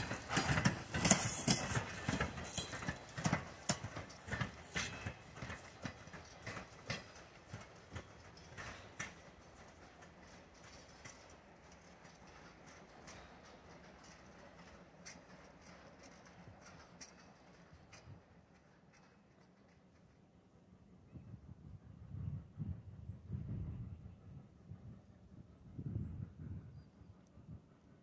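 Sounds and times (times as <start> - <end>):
horse hooves clip-clopping: 0.0 - 20.1.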